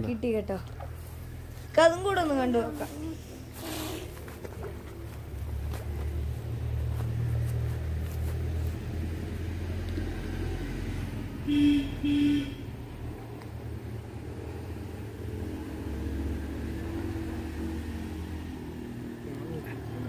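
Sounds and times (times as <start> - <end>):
vehicle low rumble: 0.0 - 20.0
car horn honks: 11.5 - 12.7.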